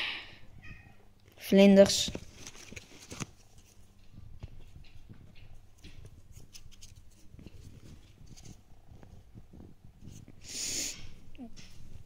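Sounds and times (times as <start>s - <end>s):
paper wrapping rustling: 1.8s - 10.3s.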